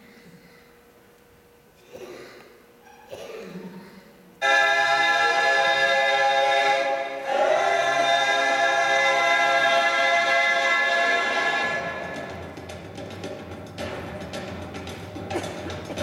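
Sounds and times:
held choir-like chord: 0:04.4 - 0:12.4.

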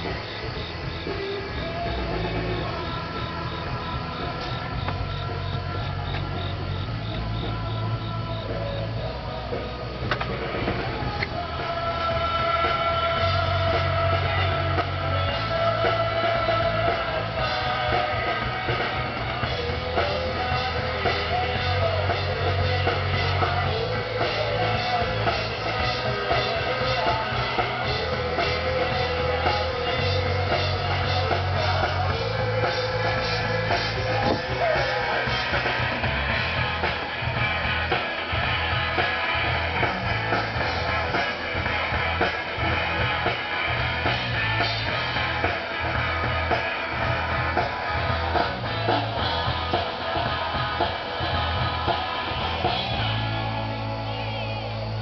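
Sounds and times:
bass guitar: 0:00.0 - 0:55.0
drum kit beat: 0:00.0 - 0:55.0
electric guitar: 0:00.0 - 0:55.0.

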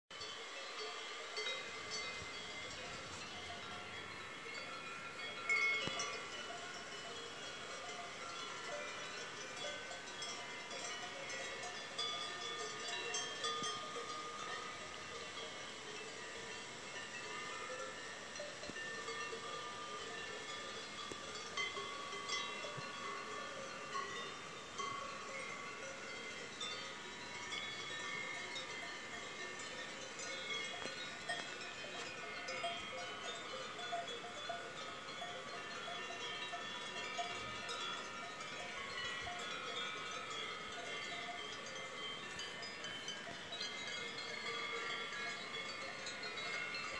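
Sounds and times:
cowbells clanking: 0:00.1 - 0:46.9.

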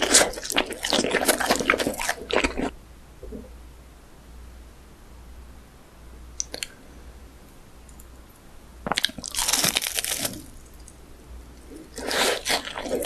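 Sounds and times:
crunching of fried food: 0:00.0 - 0:02.7, 0:08.8 - 0:11.0, 0:11.8 - 0:13.0.

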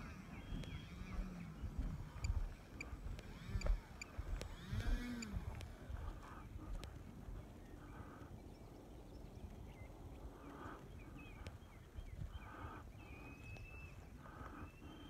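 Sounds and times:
wind noise on microphone: 0:00.0 - 0:07.8.

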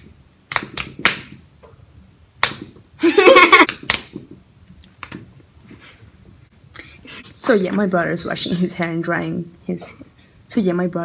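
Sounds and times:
fists smacking palms: 0:00.5 - 0:01.4
sharp slaps: 0:00.5 - 0:01.4, 0:02.4 - 0:02.8, 0:03.6 - 0:04.3.

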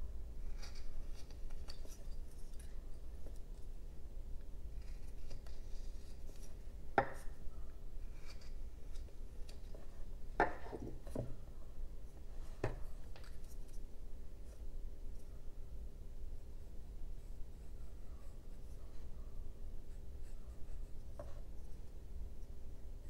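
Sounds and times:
low steady hum: 0:00.0 - 0:23.0
knife carving wood: 0:00.4 - 0:03.7.

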